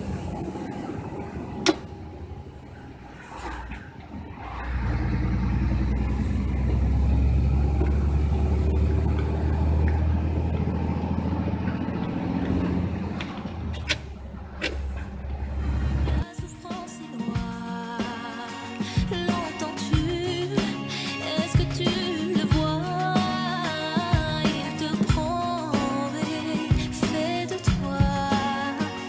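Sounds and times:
truck engine rumble in cab: 0.0s - 16.2s.

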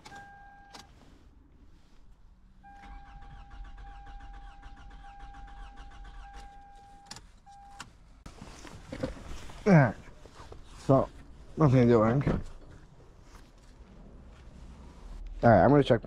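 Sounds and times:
car engine cranking: 2.6s - 8.0s
steady electronic beep: 6.2s - 7.8s.

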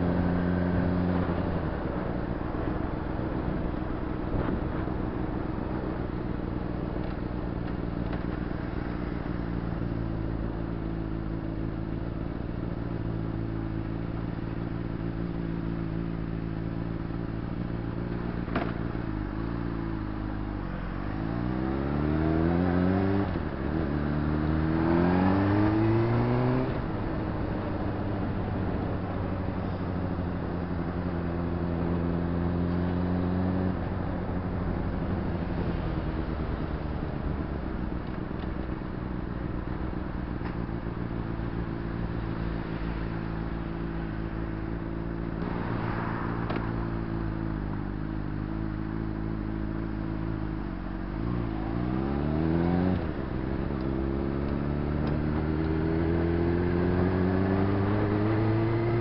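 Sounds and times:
road and traffic noise: 0.0s - 59.0s.

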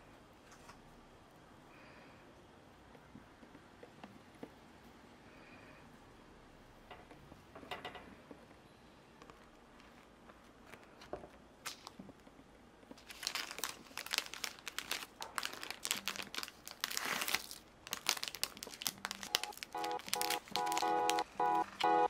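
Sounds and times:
plastic bag crinkling: 13.0s - 21.9s.

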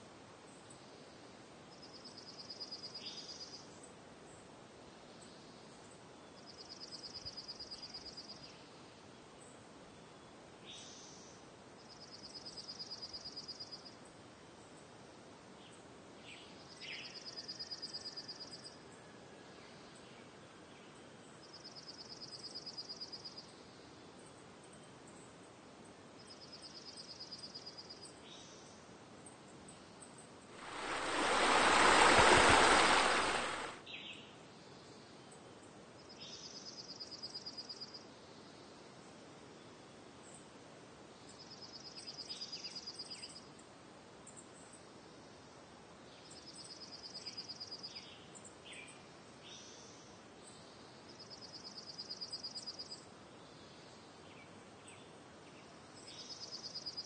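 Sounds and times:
steady hiss: 30.5s - 33.8s.

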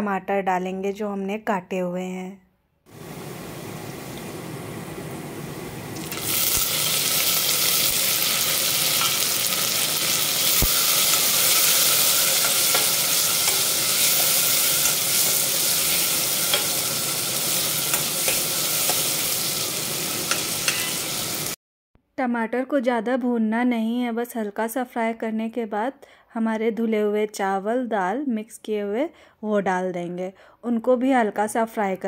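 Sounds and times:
tomatoes sizzling in hot fat: 2.9s - 21.6s
spoon clicking against pan: 16.5s - 16.8s.

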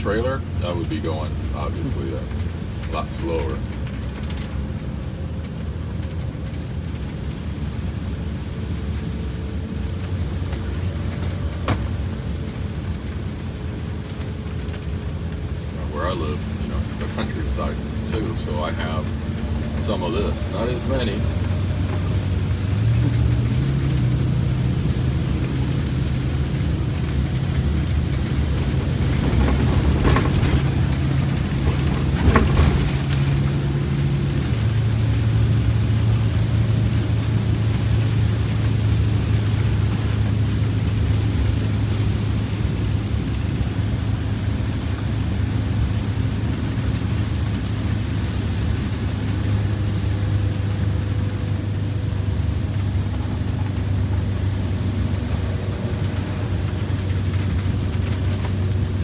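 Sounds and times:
bus engine droning: 0.0s - 59.0s.

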